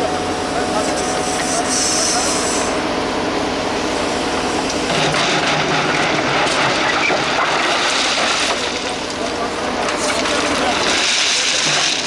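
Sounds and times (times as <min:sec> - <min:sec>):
diesel engine running: 0:00.0 - 0:12.0
bucket scraping gravel: 0:09.9 - 0:12.0.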